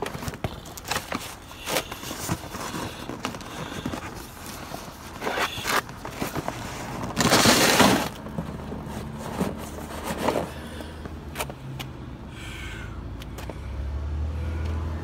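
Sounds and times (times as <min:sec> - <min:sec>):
cardboard box crushed underfoot: 0:00.0 - 0:10.6.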